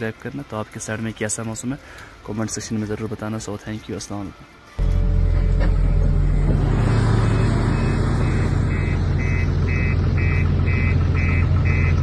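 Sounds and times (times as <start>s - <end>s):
heavy vehicle engine running: 4.8s - 12.0s
reversing alarm beeping: 4.8s - 12.0s.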